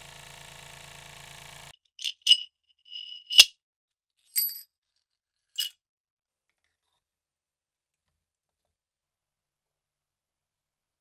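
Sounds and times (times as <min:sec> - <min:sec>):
small metal parts clinking: 0:02.0 - 0:03.5, 0:04.3 - 0:04.6, 0:05.6 - 0:05.8.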